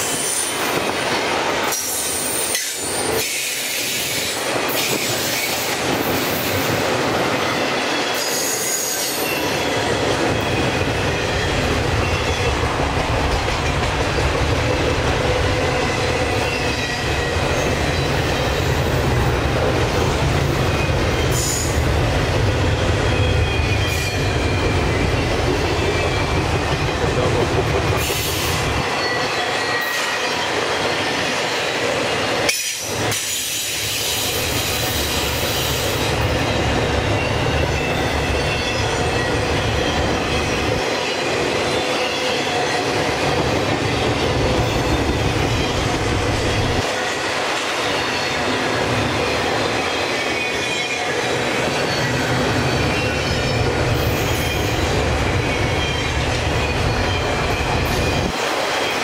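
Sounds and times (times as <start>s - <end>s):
train wheels rumbling on rail: 0.0s - 59.0s
high wheel squeals: 49.8s - 59.0s.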